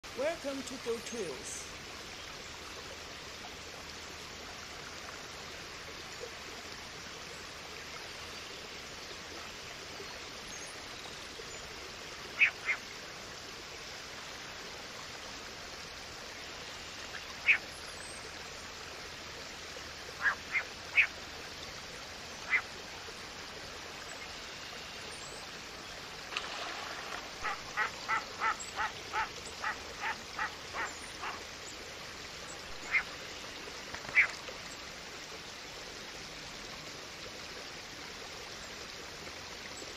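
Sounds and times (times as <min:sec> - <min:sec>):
waterbird calls: 0:12.3 - 0:12.9, 0:17.0 - 0:17.7, 0:20.1 - 0:21.2, 0:22.4 - 0:22.7, 0:26.4 - 0:31.7, 0:32.6 - 0:33.3, 0:34.0 - 0:34.4.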